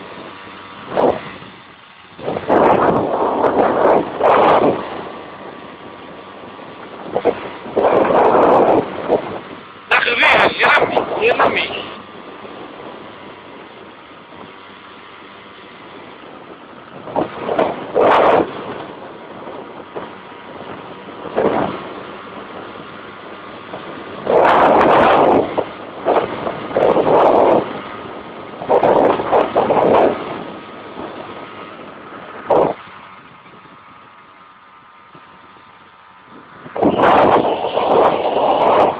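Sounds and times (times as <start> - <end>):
car driving on road: 0.0 - 38.9
loud distorted bursts: 9.9 - 12.0.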